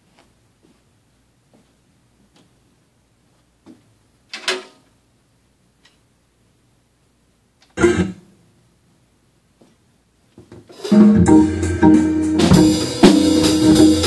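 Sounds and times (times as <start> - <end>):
footsteps: 0.0 - 0.9, 1.5 - 2.6.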